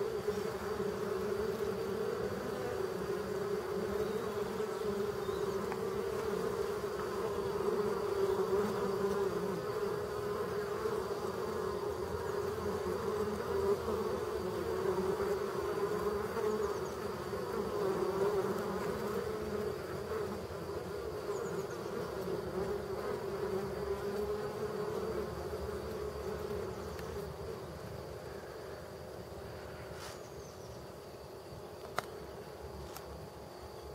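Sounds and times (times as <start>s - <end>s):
honeybees buzzing: 0.0s - 33.9s.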